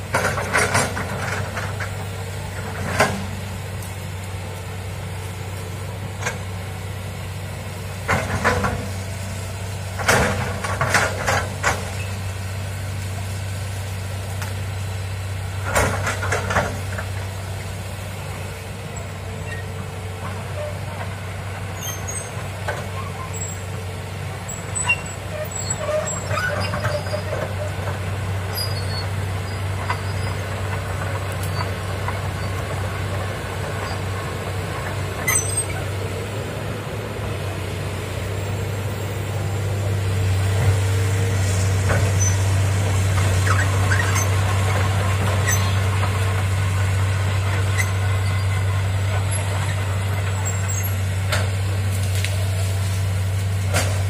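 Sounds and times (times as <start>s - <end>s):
excavator diesel engine running: 0.0s - 54.0s
short clicks and squeaks: 31.4s - 31.8s, 35.2s - 35.9s, 43.4s - 44.4s.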